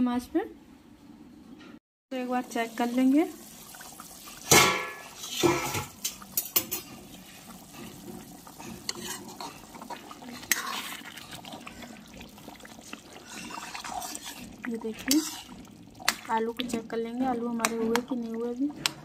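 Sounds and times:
curry bubbling at a boil: 2.2 - 19.0
steel pot lid clanging: 4.5 - 6.9.

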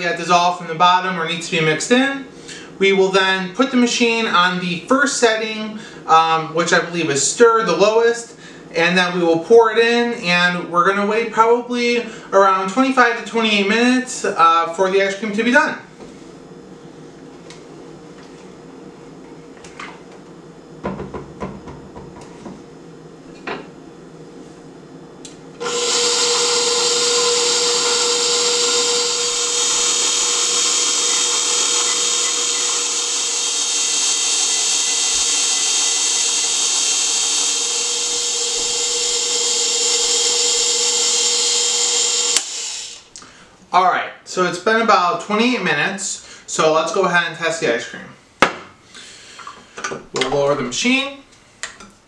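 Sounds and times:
stand mixer humming with whine: 25.6 - 43.1.

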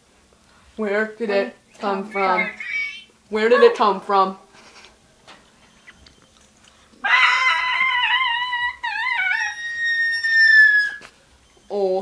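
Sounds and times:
child's high-pitched wail: 7.0 - 11.1.

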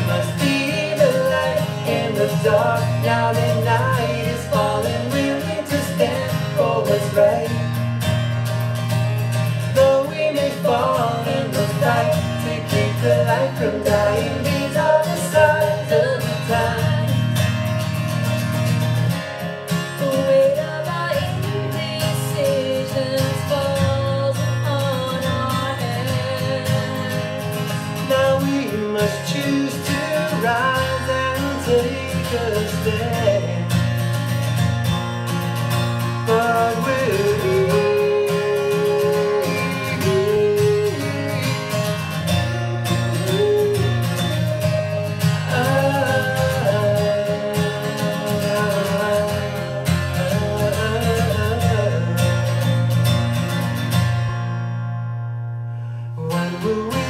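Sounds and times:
man singing: 0.0 - 7.8, 9.7 - 17.5, 19.8 - 33.9, 36.2 - 53.0, 56.2 - 57.0
strummed acoustic guitar: 0.0 - 57.0
woman singing: 9.8 - 17.5, 20.0 - 27.8.

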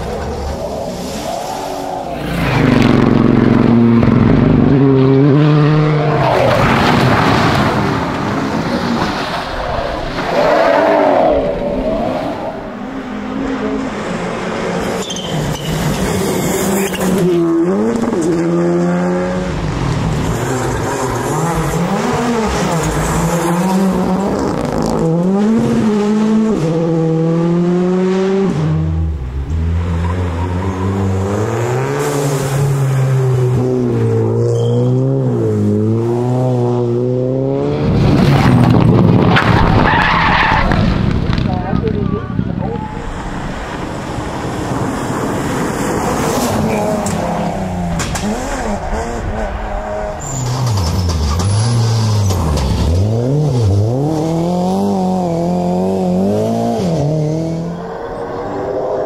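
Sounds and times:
rally car engines revving: 0.0 - 59.0.

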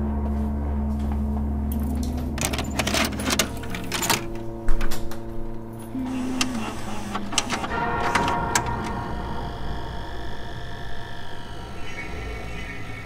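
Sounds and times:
low drone of steady tones: 0.0 - 13.0
sharp clicks and clatter: 2.3 - 5.2.

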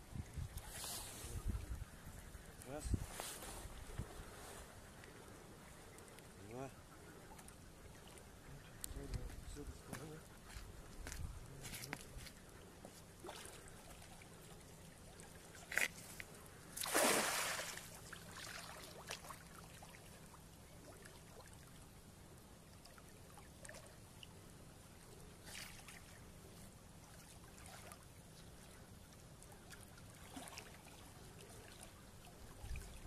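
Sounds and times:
net splashing on water: 16.8 - 19.4.

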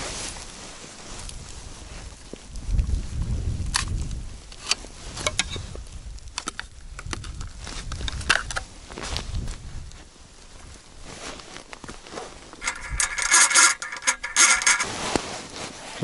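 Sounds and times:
ice cracking and clicking: 3.7 - 8.7, 11.6 - 14.9
ice auger grinding through ice: 12.6 - 15.0.

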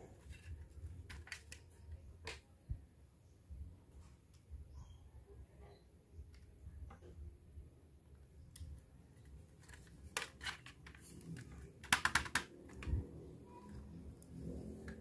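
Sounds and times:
plastic clicks: 8.5 - 13.0.

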